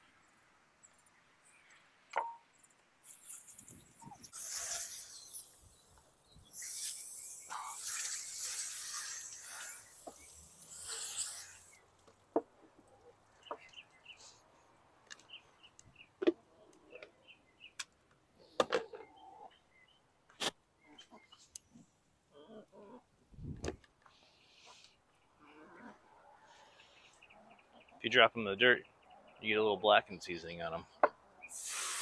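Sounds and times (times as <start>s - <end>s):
small bird chirping: 2.5s - 11.8s
hose nozzle spraying water: 3.0s - 5.5s, 6.5s - 11.8s, 31.5s - 32.0s.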